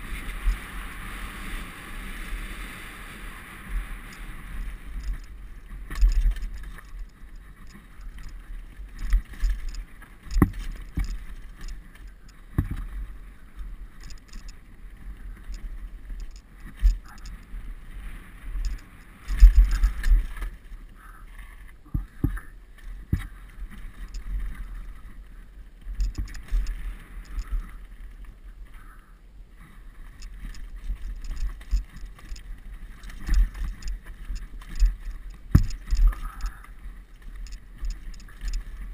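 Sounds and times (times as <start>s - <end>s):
bike knocking and rattling: 4.0s - 17.6s, 18.5s - 21.1s, 21.8s - 24.7s, 25.9s - 28.9s, 30.2s - 38.9s.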